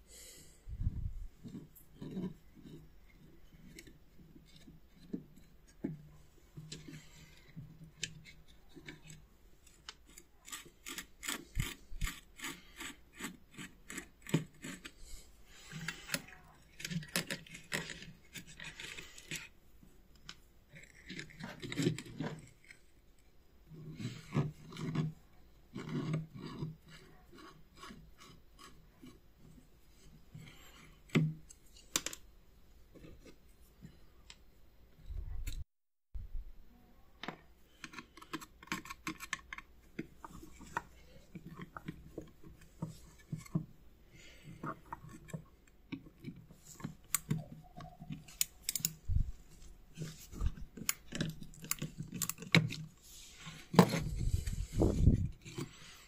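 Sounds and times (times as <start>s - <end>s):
screwdriver clicking on metal: 48.1s - 49.0s.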